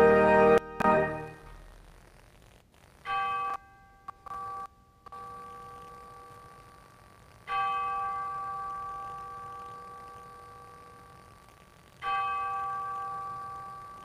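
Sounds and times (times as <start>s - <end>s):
bell ringing: 7.5s - 11.0s, 12.0s - 14.0s.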